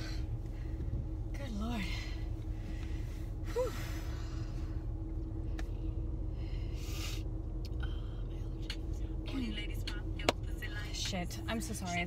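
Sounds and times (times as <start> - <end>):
car cabin rumble: 0.0 - 12.0.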